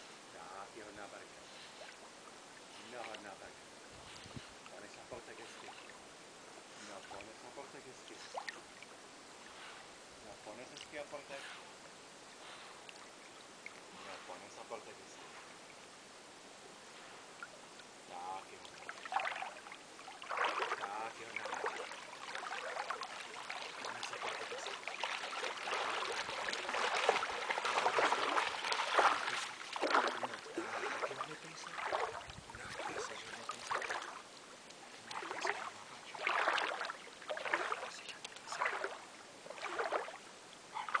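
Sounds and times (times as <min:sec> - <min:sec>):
dog splashing through water: 0:18.8 - 0:34.2, 0:35.0 - 0:40.2.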